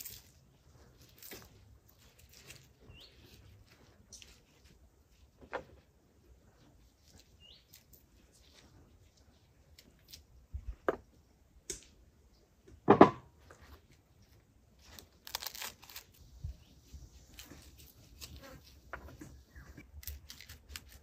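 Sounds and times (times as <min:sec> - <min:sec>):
rustling or tearing: 0:00.0 - 0:05.2, 0:13.8 - 0:18.9, 0:19.8 - 0:21.0
bird chirp: 0:02.8 - 0:03.5, 0:07.2 - 0:07.8, 0:19.2 - 0:19.8.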